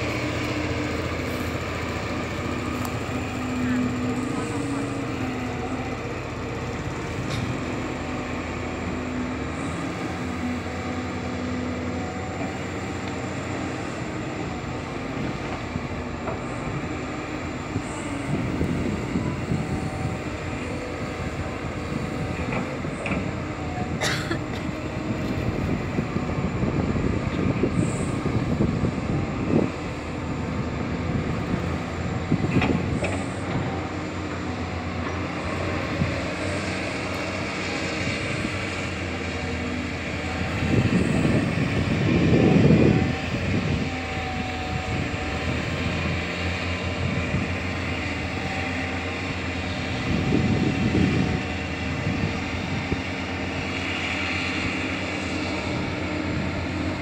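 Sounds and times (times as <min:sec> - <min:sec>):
excavator engine and hydraulics: 0:00.0 - 0:57.0.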